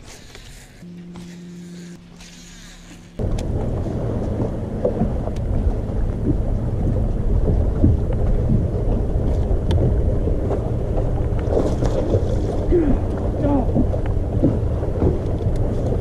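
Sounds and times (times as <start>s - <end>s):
water splashing against hull: 0.0s - 16.0s
wind buffeting microphone: 3.2s - 16.0s.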